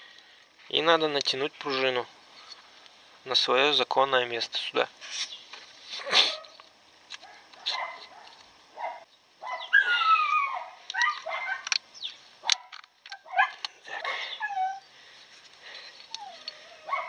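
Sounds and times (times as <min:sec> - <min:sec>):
dog whining: 0:08.8 - 0:11.7, 0:13.2 - 0:14.9, 0:16.1 - 0:17.0.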